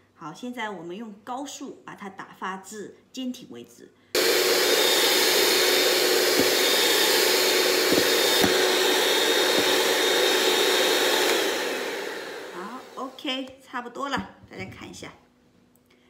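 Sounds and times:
electric mixer whirring: 4.2s - 13.3s.

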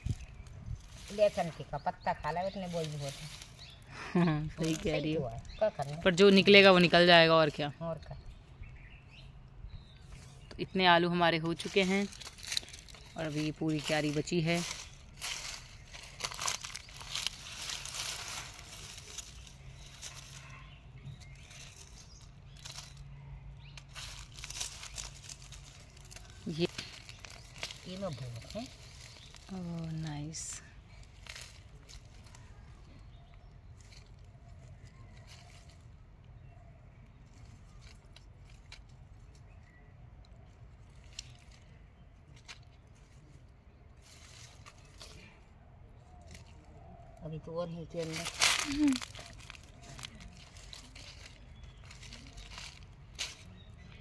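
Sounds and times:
dry leaves crunching: 0.0s - 9.4s, 10.0s - 54.0s
scraping and rustling of soil: 0.0s - 54.0s
small crackles: 11.6s - 47.3s, 47.9s - 54.0s.

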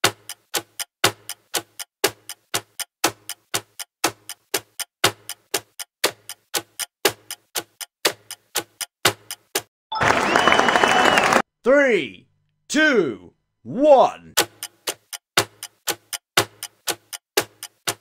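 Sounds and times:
clock ticking: 0.0s - 9.7s, 13.9s - 18.0s.

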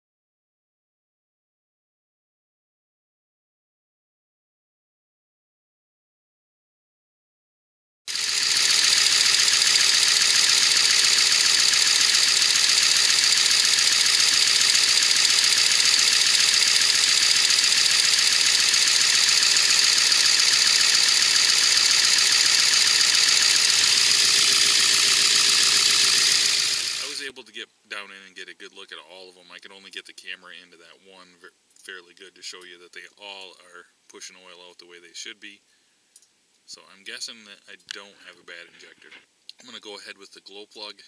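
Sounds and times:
diesel engine idling: 8.2s - 27.2s.

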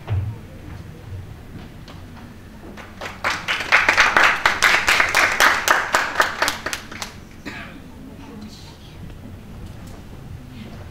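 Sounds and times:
audience applauding: 2.7s - 7.4s.

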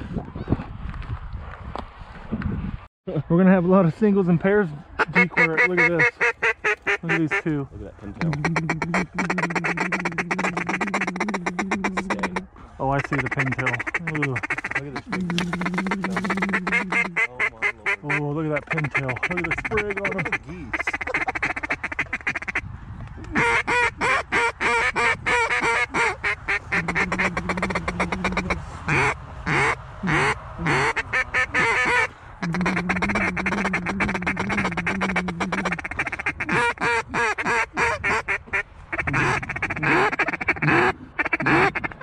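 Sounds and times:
duck calls quacking: 5.0s - 7.5s, 8.1s - 22.6s, 23.2s - 42.0s
low steady duck call note: 8.2s - 22.6s, 23.4s - 42.0s.

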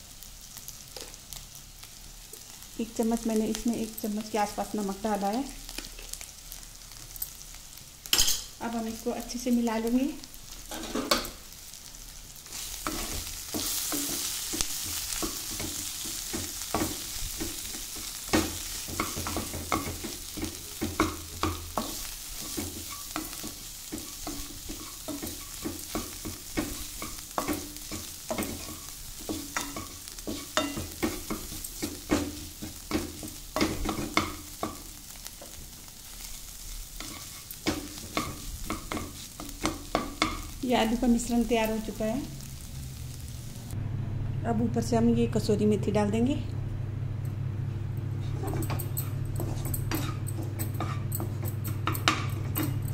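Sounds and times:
hot oil sizzling: 0.0s - 43.8s, 48.7s - 52.9s
spatula scraping frying pan: 10.6s - 11.4s, 12.4s - 35.6s, 36.2s - 40.6s, 48.2s - 52.9s.

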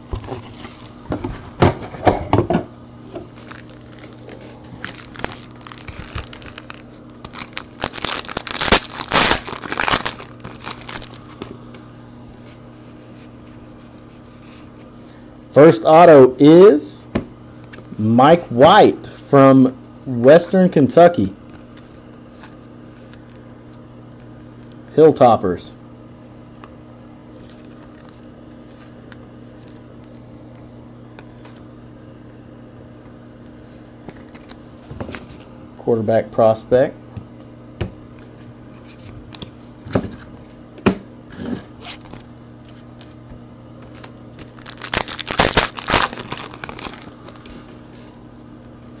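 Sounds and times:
low electrical hum: 0.0s - 49.0s
foil wrapper crinkling and tearing: 0.2s - 1.0s, 3.3s - 11.5s, 43.9s - 47.8s.

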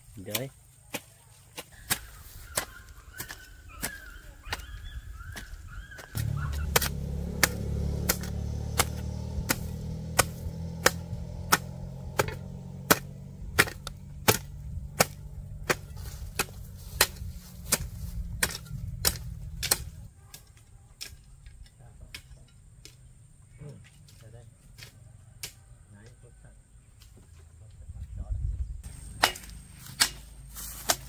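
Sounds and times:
steady low rumble: 6.1s - 20.1s.

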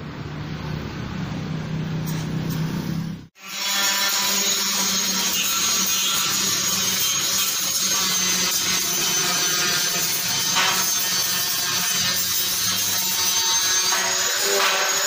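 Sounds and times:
angle grinder grinding steel: 3.4s - 15.0s.

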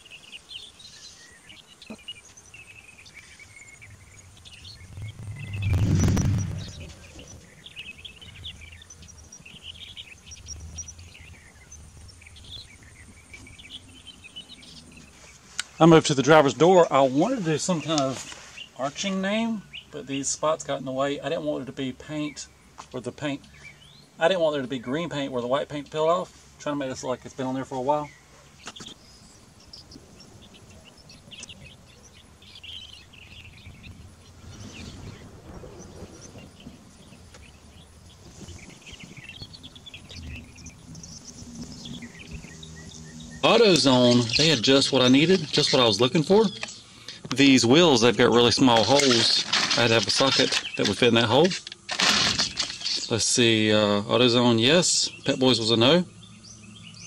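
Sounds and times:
birds chirping: 0.0s - 57.0s
low steady hum: 2.4s - 15.0s, 39.1s - 47.9s
low outdoor rumble: 3.2s - 15.1s, 29.0s - 47.0s.

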